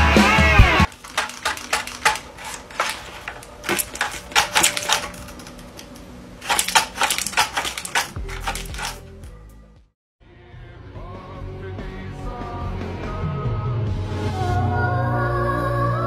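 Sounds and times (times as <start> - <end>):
stiff paper crackling: 0.9 - 9.0.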